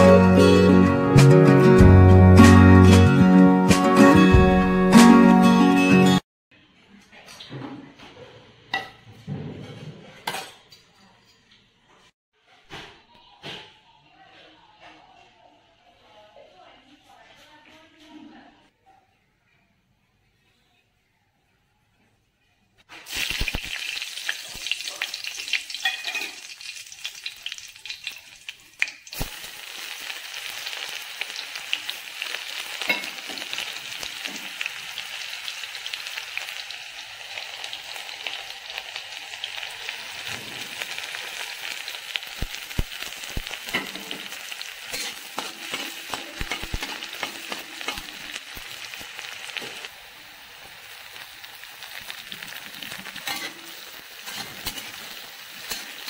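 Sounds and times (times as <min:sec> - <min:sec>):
hot oil sizzling in a wok: 0:22.9 - 0:56.0.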